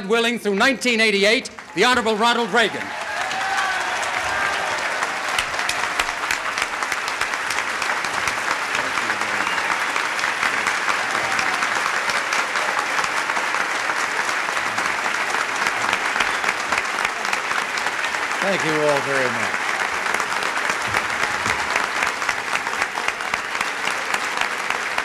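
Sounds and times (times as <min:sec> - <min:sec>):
crowd applauding: 0:00.0 - 0:25.0.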